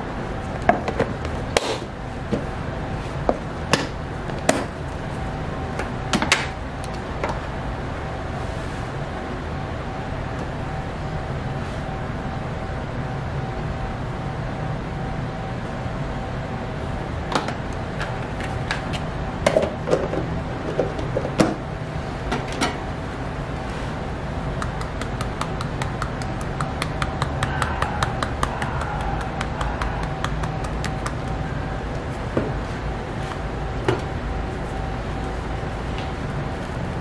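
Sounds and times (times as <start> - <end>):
low machinery hum: 0.0 - 37.0
sieve being tapped: 24.6 - 31.4.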